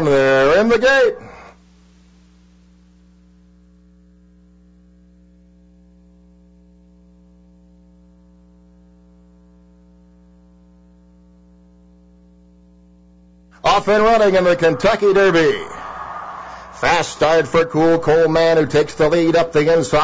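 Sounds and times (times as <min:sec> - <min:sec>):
electrical hum: 0:12.4 - 0:20.0.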